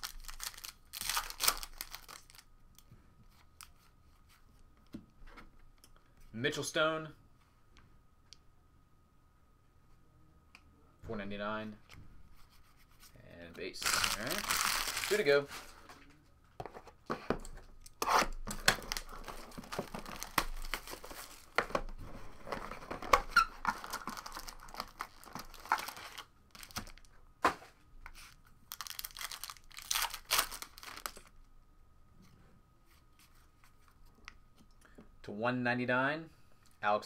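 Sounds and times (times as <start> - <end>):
packaging being torn open: 0.0 - 2.4, 13.8 - 15.3, 17.8 - 21.6, 23.1 - 27.1, 28.7 - 31.3
plastic and foil crinkling: 0.0 - 2.5, 13.7 - 15.8, 18.5 - 21.7, 22.3 - 27.2, 28.1 - 31.3.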